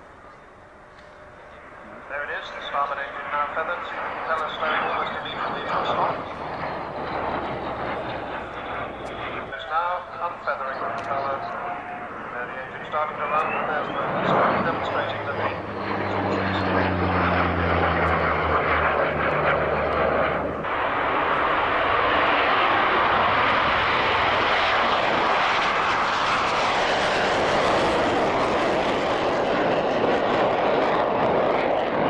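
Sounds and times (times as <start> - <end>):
jet roar: 0.0 - 32.0
propeller plane drone: 0.0 - 32.0.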